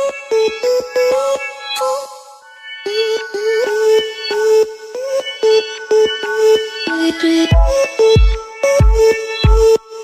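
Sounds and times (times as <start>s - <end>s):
electronic music with steady beat: 0.0s - 10.0s.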